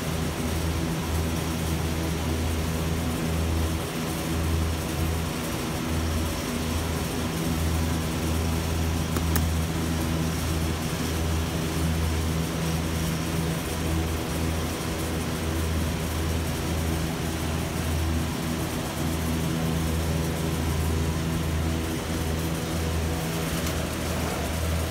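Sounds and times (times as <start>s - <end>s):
single click: 9.2s - 9.5s.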